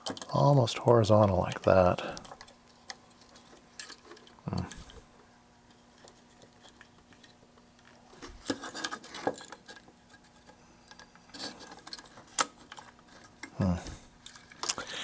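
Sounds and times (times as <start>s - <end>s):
faint steady hum: 0.0s - 15.0s
circuit board handling clicks and rattles: 14.2s - 15.0s.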